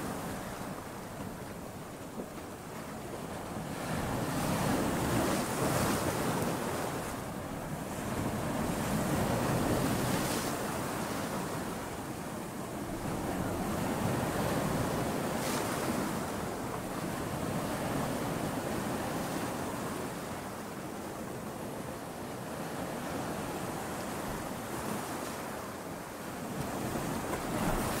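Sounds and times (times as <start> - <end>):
ocean waves breaking: 0.0 - 28.0.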